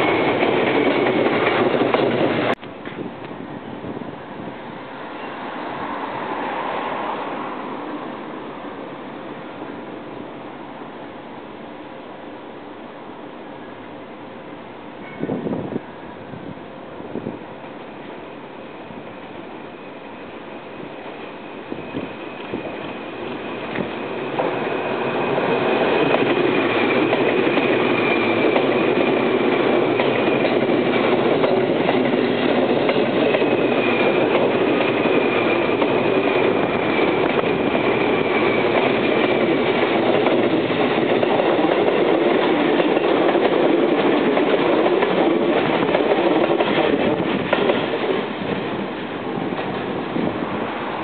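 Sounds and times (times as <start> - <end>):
train wheels rumbling on rails: 0.0 - 10.8, 14.9 - 51.0
faint high tone: 15.0 - 15.4.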